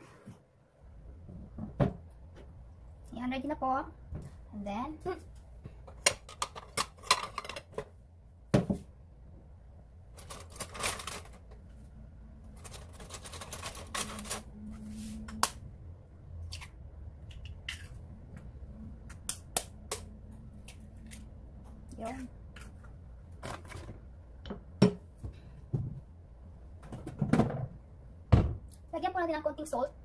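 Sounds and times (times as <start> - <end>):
kitchen knocks and clatter: 26.8 - 28.6.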